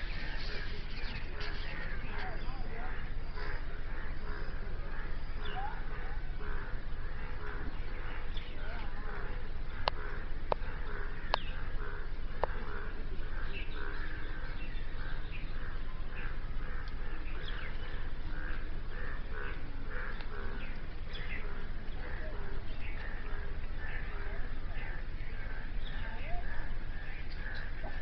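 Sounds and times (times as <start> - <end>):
low steady rumble: 0.0 - 28.0.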